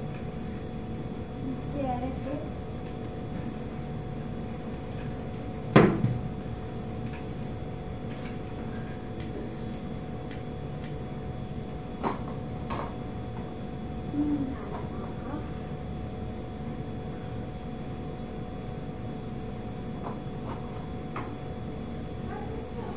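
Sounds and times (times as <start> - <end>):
steady hum: 0.0 - 22.9
knocks on cupboard: 5.7 - 6.2.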